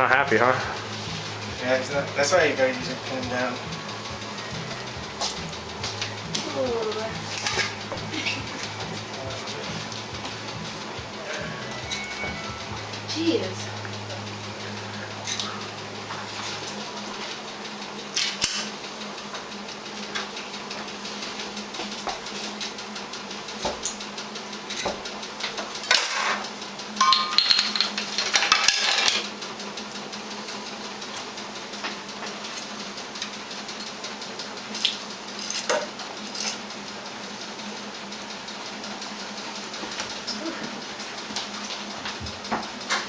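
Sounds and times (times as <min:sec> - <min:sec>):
steady low hum: 0:00.0 - 0:25.6
utensils and dishes clinking: 0:04.4 - 0:12.7, 0:25.4 - 0:29.3
metallic ring: 0:27.0 - 0:27.9.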